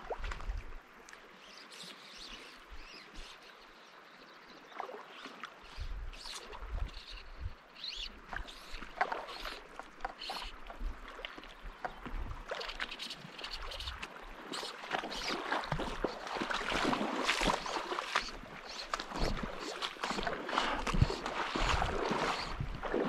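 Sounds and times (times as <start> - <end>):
creek water running and splashing: 0.0 - 23.0
wind rumbling on microphone: 5.7 - 7.6, 10.6 - 12.6, 16.8 - 23.0.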